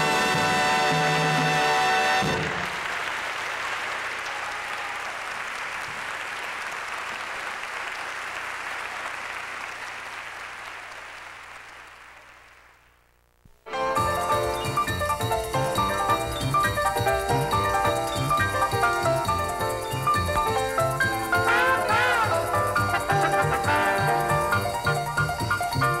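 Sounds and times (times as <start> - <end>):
audience applause: 2.2 - 12.9.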